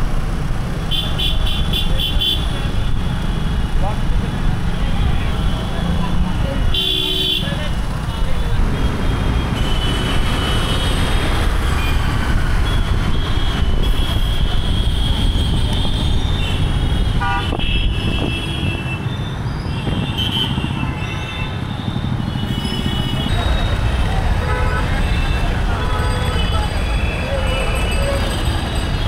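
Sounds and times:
vehicle horns blasting: 0:06.7 - 0:07.6, 0:12.6 - 0:19.1, 0:19.7 - 0:28.3
wind and road noise rumble: 0:07.6 - 0:21.0.

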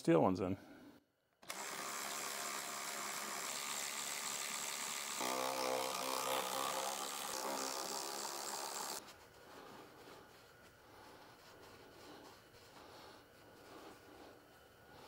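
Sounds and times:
power driver motor running: 0:01.4 - 0:09.0.

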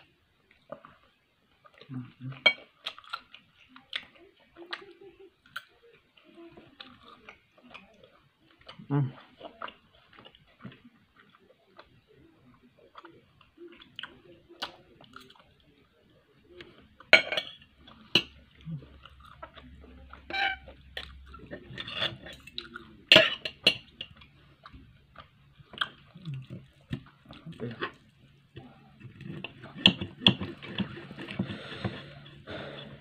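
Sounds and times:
cutlery scraping on a plate: 0:17.1 - 0:18.3, 0:20.3 - 0:20.7, 0:21.4 - 0:24.1, 0:29.0 - 0:33.0.

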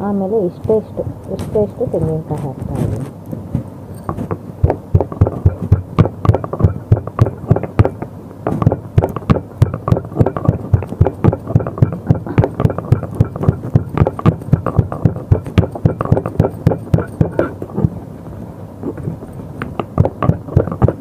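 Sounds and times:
pestle pounding in stone mortar: 0:04.1 - 0:17.5, 0:19.6 - 0:21.0.

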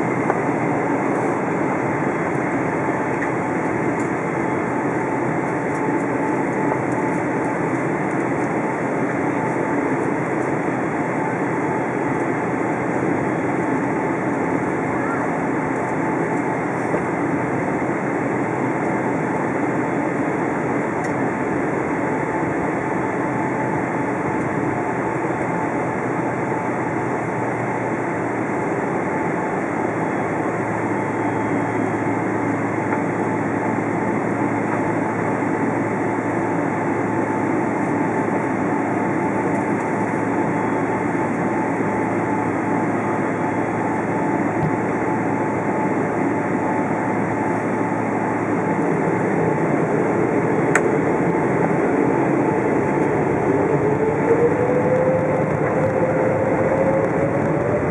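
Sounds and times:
air conditioning: 0:00.0 - 0:57.9
jet engines rushing: 0:00.0 - 0:57.9
steady whine: 0:00.0 - 0:57.9
low hum: 0:37.0 - 0:57.9.

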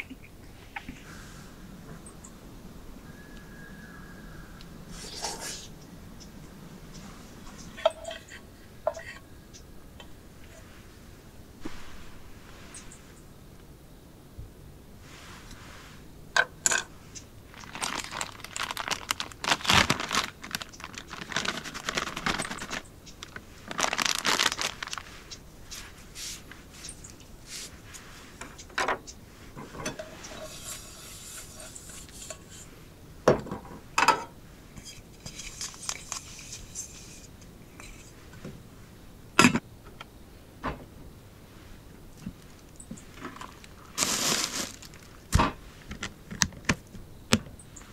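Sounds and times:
plastic packaging crinkling: 0:17.5 - 0:25.3, 0:42.4 - 0:46.1
paper towel rubbing metal pot: 0:30.2 - 0:32.8.

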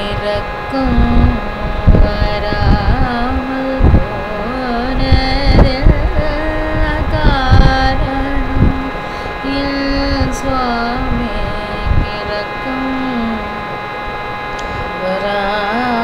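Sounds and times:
woman singing: 0:00.0 - 0:13.8, 0:14.6 - 0:16.0
steady drone: 0:00.0 - 0:16.0.

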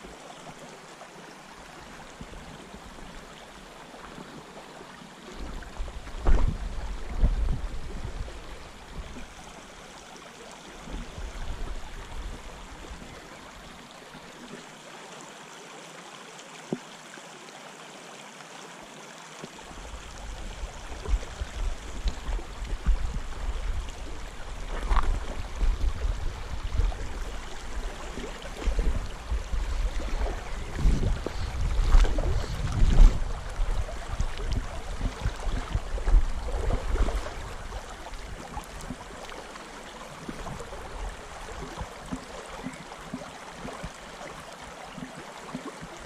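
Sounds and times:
wind buffeting microphone: 0:05.4 - 0:09.4, 0:19.8 - 0:39.0.

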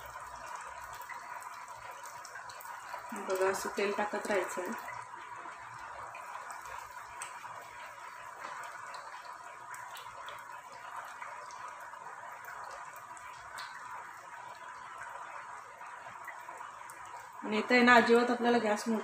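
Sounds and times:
oil dripping into pan: 0:00.0 - 0:18.9
pastry sizzling in oil: 0:00.0 - 0:19.0.

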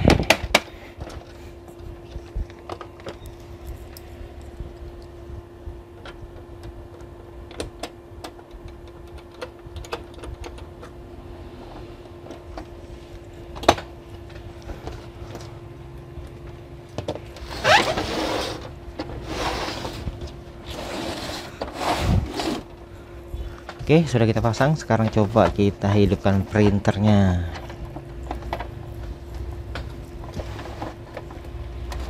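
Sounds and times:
steady hum: 0:00.0 - 0:32.0
printer scraping on bench: 0:17.4 - 0:22.8, 0:30.2 - 0:32.0.

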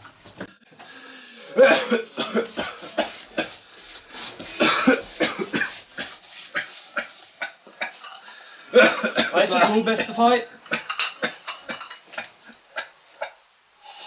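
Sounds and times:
person coughing: 0:01.4 - 0:03.6, 0:04.6 - 0:06.7, 0:08.8 - 0:12.0.

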